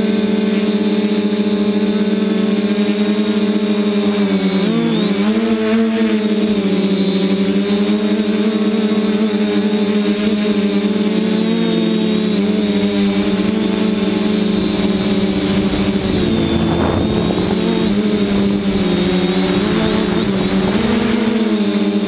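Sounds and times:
drone propellers whirring: 0.1s - 22.0s
rush of noise: 12.0s - 21.7s.

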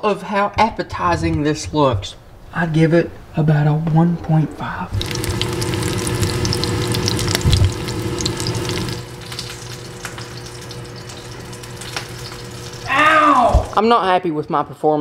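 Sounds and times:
low steady hum: 2.2s - 13.7s
meat sizzling in oil: 4.9s - 13.8s.

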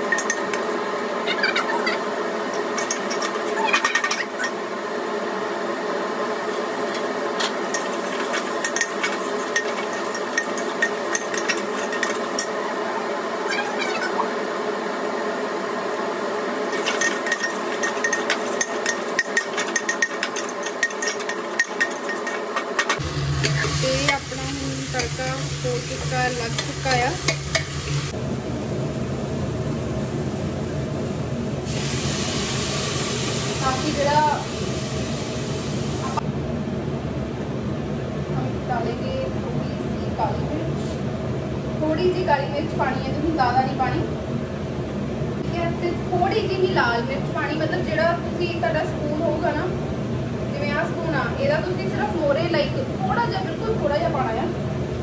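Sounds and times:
vegetables sizzling in a pot: 0.0s - 36.2s
steady hum: 0.0s - 55.0s
metal spoon scraping and tapping pot: 16.8s - 24.2s
low hum with soft hiss: 23.0s - 31.6s.

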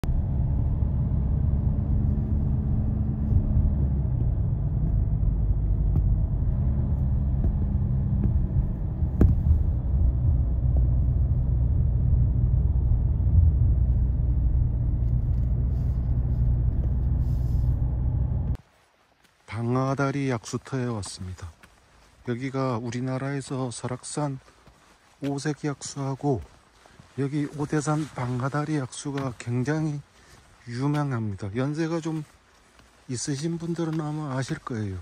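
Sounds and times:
car engine drone and road rumble: 0.0s - 18.6s.

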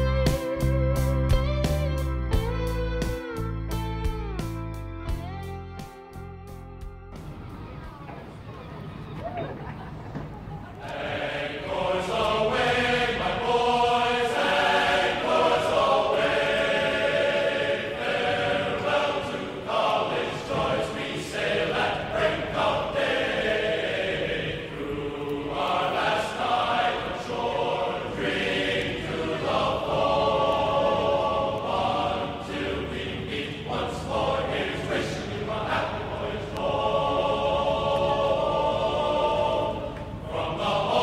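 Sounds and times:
choir singing long notes: 10.6s - 41.0s.

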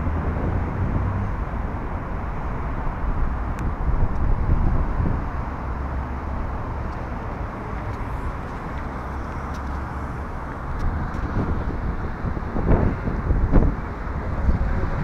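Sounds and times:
wind buffeting microphone: 0.0s - 15.0s.

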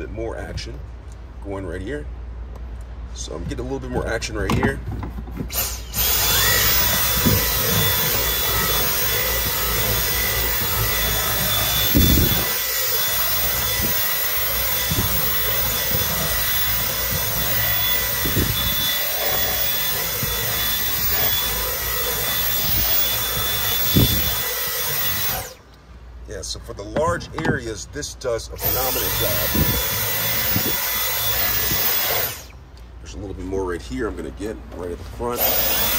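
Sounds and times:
cordless vacuum whining: 5.5s - 25.6s, 28.6s - 32.5s, 35.4s - 35.9s.

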